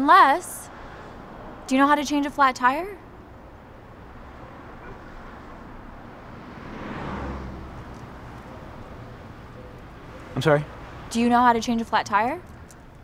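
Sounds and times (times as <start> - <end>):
low steady street rumble: 0.0 - 13.0
vehicle passing: 0.0 - 13.0.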